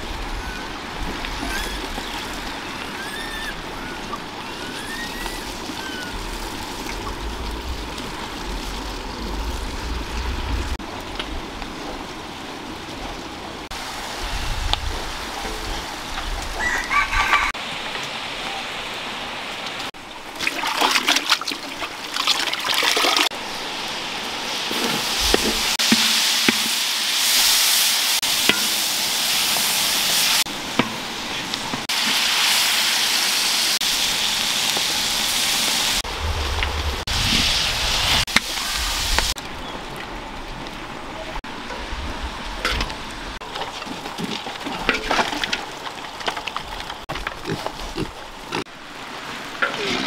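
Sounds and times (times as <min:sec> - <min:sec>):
food sizzling in wok: 0:23.5 - 0:36.1, 0:36.9 - 0:39.4.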